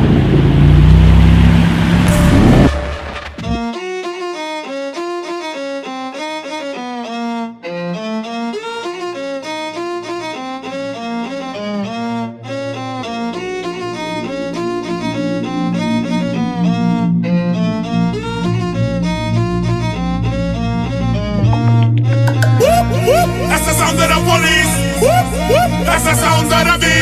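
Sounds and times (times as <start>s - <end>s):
low bass part: 0.0s - 3.7s, 12.5s - 27.0s
fast violin melody: 2.1s - 27.0s.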